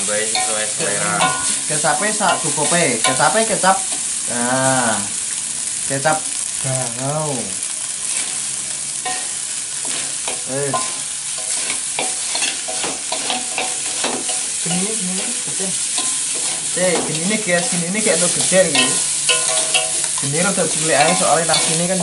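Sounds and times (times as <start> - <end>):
metal clinking on wok: 0.0 - 4.1, 9.0 - 22.0
spatula scraping wok: 0.0 - 4.4, 7.6 - 22.0
rice sizzling in wok: 0.0 - 22.0.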